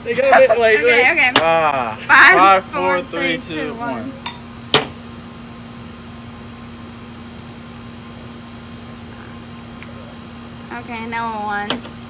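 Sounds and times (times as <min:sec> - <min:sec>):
crickets chirring: 0:00.0 - 0:12.0
low steady hum: 0:00.0 - 0:12.0
wine glasses clinking: 0:04.2 - 0:04.4.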